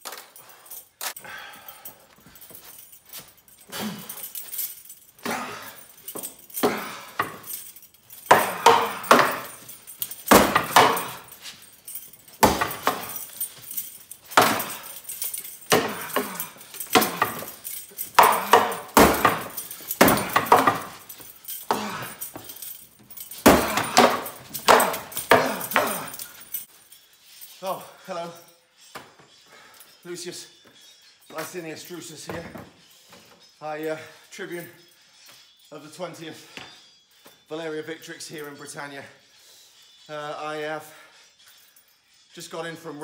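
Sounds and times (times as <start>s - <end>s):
metal fittings jangling: 0.0s - 43.0s
wooden sword striking post: 18.2s - 20.9s.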